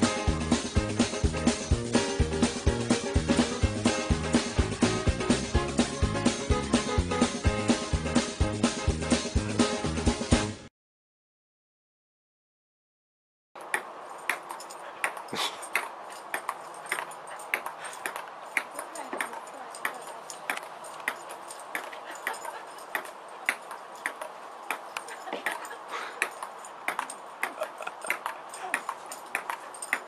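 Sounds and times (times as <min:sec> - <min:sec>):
ping-pong ball bouncing: 0:26.2 - 0:30.0.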